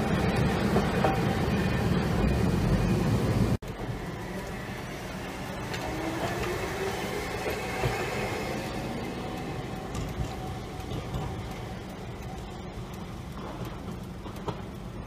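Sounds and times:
tram passing with faint whine: 0.0 - 15.0
tram rumbling past: 0.0 - 15.0.

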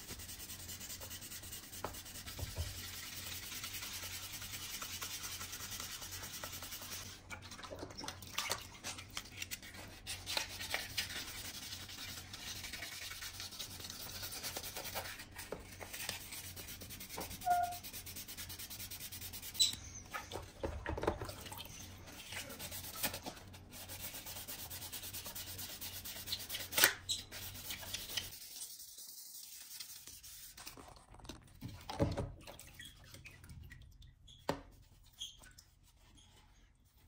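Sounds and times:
sanding sponge rasping on plastic: 0.0 - 7.1, 22.5 - 30.6.

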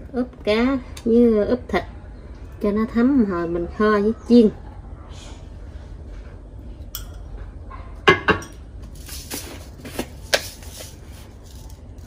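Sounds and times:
metal spoon clinking on glass jars: 6.9 - 7.4.

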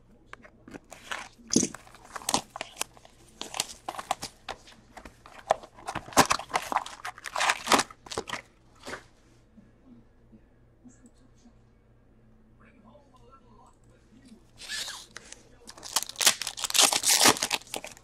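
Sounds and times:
cardboard tearing: 0.8 - 9.0, 14.6 - 18.0
foil packs crinkling: 0.8 - 9.0, 14.6 - 18.0.

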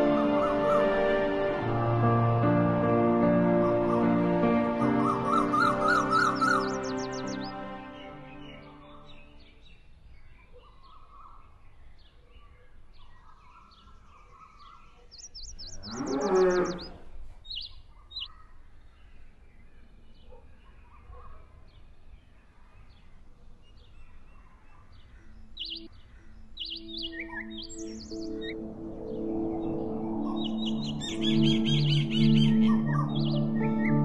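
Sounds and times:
birds chirping: 0.0 - 1.4, 3.2 - 34.0
rapid bird trill: 5.0 - 7.5, 13.4 - 18.6, 23.8 - 34.0.

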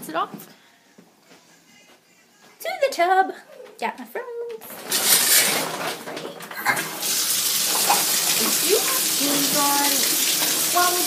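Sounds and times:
water running from a tap: 4.8 - 11.0.

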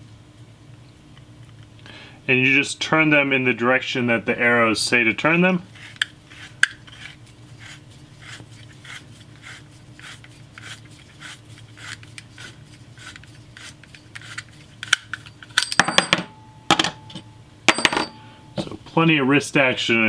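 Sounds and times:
tubing cutter scraping pipe: 5.7 - 14.6.

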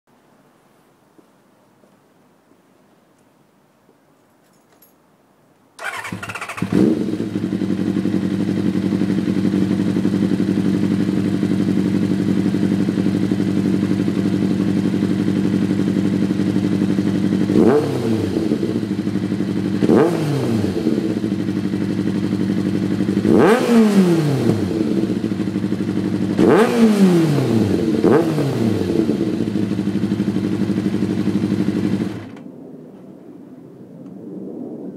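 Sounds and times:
motorcycle engine idling and revving: 5.8 - 32.4.

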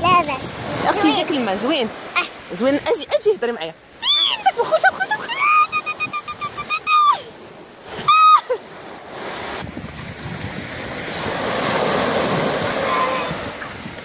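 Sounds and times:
small waves breaking on sand: 0.0 - 14.0
child's high-pitched cry: 4.0 - 4.5, 5.2 - 7.3, 8.1 - 8.6, 12.8 - 13.4.

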